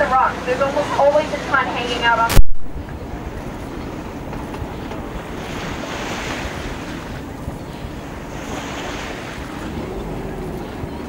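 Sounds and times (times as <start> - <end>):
low engine rumble: 0.0 - 11.0
water rushing along boat hull: 0.0 - 11.0
wind on microphone: 2.3 - 11.0.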